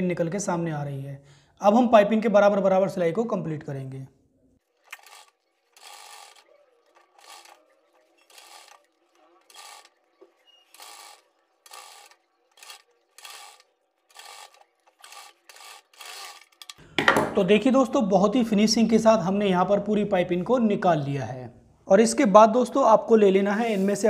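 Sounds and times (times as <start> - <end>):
sewing machine stitching: 4.6 - 16.7.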